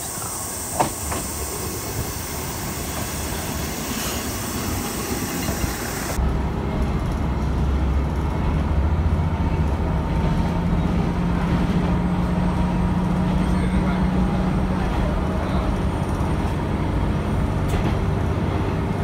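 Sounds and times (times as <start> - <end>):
diesel railcar arriving: 0.0 - 19.0
diesel engine low hum: 5.8 - 19.0.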